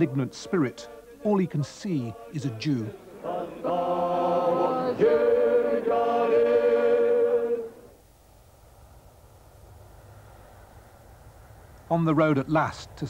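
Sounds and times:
voices chanting long held notes: 0.0s - 8.0s
faint low hum: 0.0s - 13.0s.

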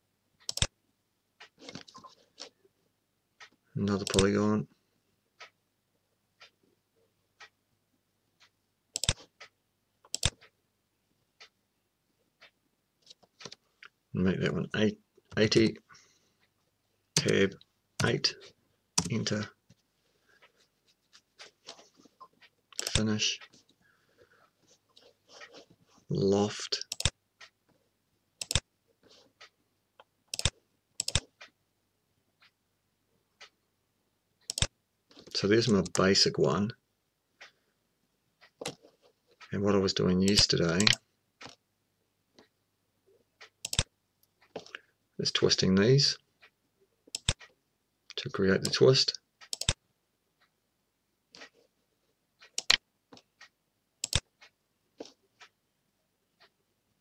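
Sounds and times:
computer mouse clicks: 0.4s - 0.7s, 3.4s - 4.3s, 8.9s - 10.5s, 22.7s - 23.5s, 26.8s - 27.5s, 28.4s - 28.7s, 30.3s - 31.5s, 34.4s - 36.0s, 40.3s - 41.6s, 43.4s - 44.8s, 47.1s - 47.5s, 49.4s - 49.8s, 52.4s - 55.5s.

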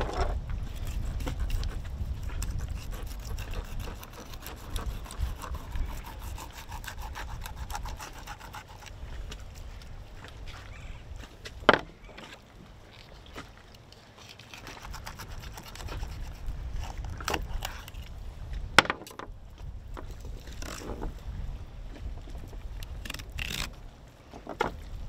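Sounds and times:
knife scraping fish: 0.6s - 9.6s, 14.2s - 18.1s, 22.9s - 23.8s.

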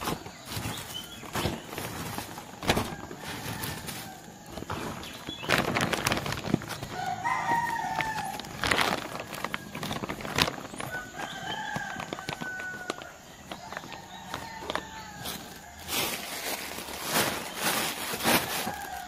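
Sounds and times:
plastic bag crinkling: 0.0s - 19.0s
rooster crowing: 2.6s - 4.8s, 6.8s - 8.6s, 10.8s - 19.0s.

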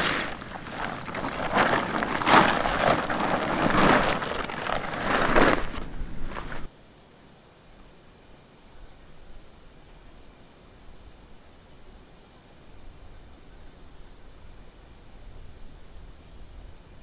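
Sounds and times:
tent fabric rustling and flapping: 0.0s - 6.7s.

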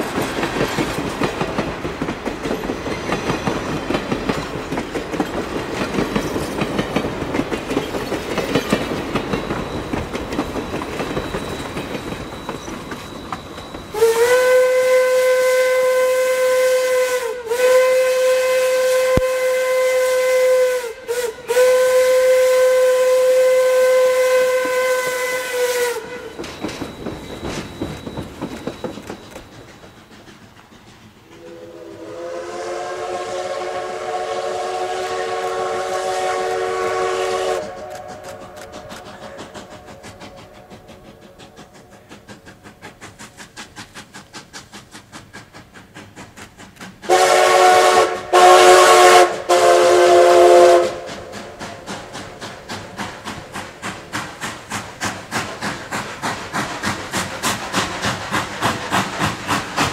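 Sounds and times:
steam locomotive chuffing: 0.0s - 59.9s
steam whistle blasts: 13.8s - 26.4s, 31.4s - 41.2s, 47.1s - 51.3s.

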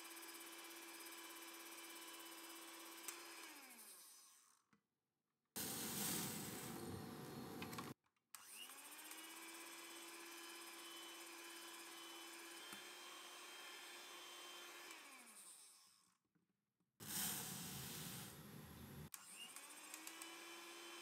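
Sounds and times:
electric hand mixer whining: 19.4s - 21.0s.

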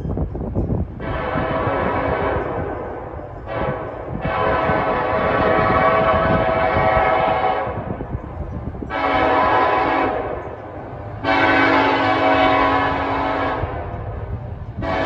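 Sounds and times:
low rumble of train: 0.0s - 15.0s
locomotive air horn blasts: 1.0s - 8.0s, 8.9s - 10.5s, 11.2s - 14.1s, 14.8s - 15.0s.

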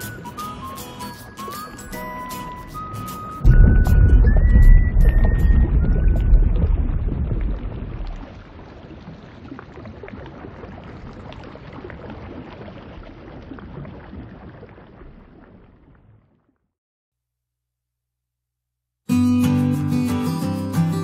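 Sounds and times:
underwater rushing wash: 1.4s - 15.8s
small bubble pops: 3.5s - 16.2s.

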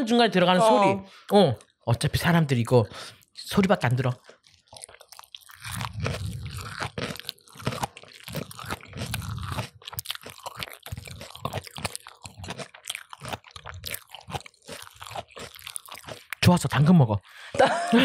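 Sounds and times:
chewing: 3.0s - 17.0s
crunching fried chicken: 3.6s - 17.0s.

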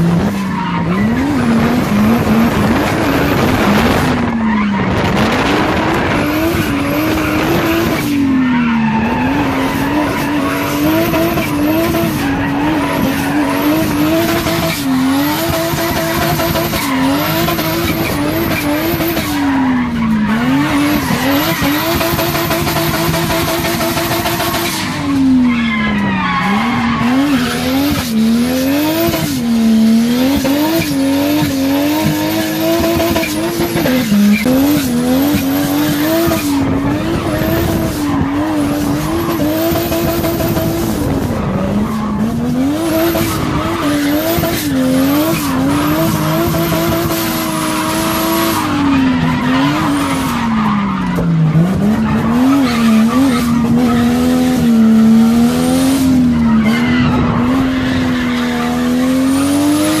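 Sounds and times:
car engine at high revs: 0.0s - 60.0s.

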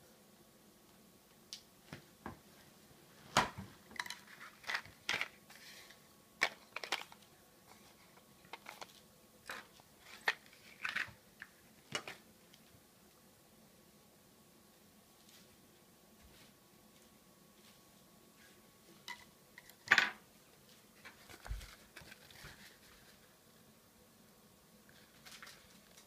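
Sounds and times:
plastic packaging crackling: 3.9s - 7.3s, 8.4s - 12.2s, 25.0s - 26.0s.

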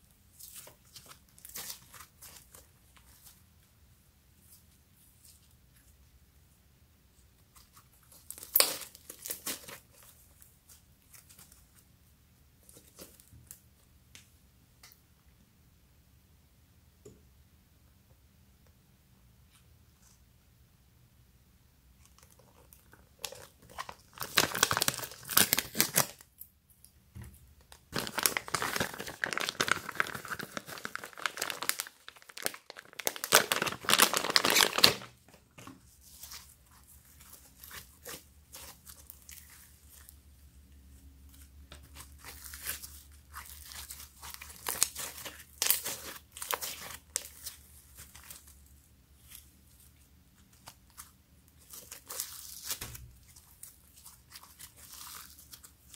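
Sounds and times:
plastic pouch crinkling and tearing: 0.4s - 3.2s, 8.1s - 10.5s, 22.2s - 26.3s, 27.9s - 35.2s, 36.0s - 40.1s, 41.4s - 48.5s, 50.5s - 55.9s
slime crackling and popping: 27.9s - 35.2s, 41.9s - 48.5s.

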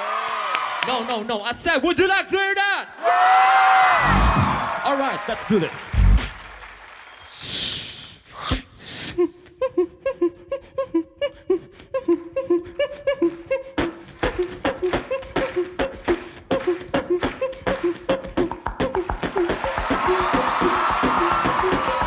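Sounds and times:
person beatboxing: 5.9s - 6.4s, 7.4s - 22.0s.

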